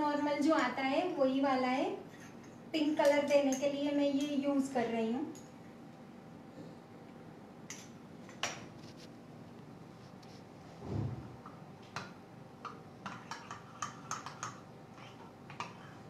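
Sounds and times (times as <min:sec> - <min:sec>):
low dull thump: 0:10.8 - 0:11.3.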